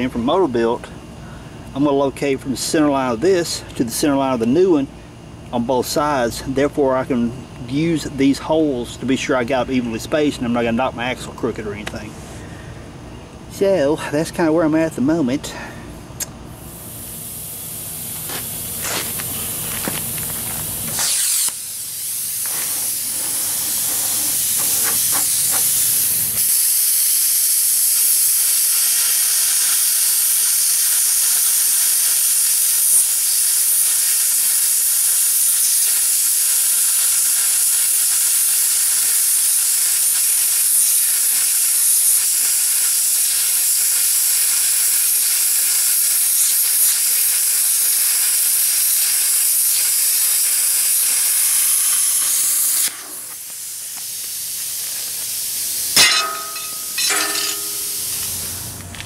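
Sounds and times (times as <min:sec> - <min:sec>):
plasma cutter hissing: 0:16.6 - 0:58.6.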